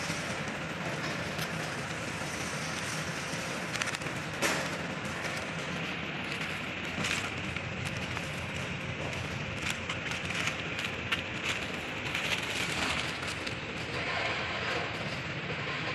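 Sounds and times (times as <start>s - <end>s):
machinery hiss: 0.0s - 7.4s
crackling clicks: 3.6s - 14.1s.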